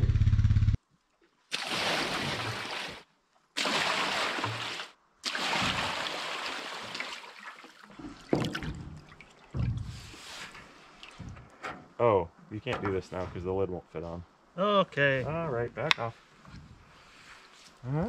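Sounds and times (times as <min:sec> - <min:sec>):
water poured into metal tub: 0:03.6 - 0:11.3
knock: 0:09.6 - 0:09.9.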